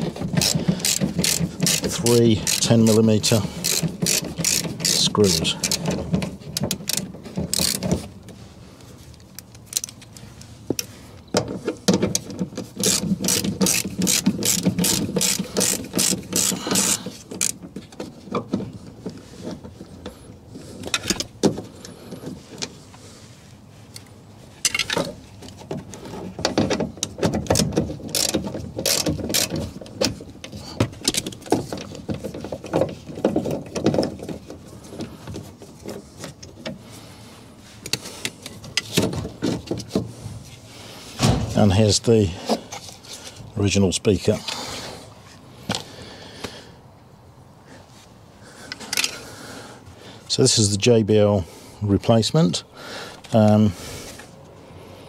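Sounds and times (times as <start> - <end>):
hand ratchet clicking: 0.0 - 7.9, 12.1 - 17.6, 27.0 - 29.8
handling noise: 0.0 - 43.5.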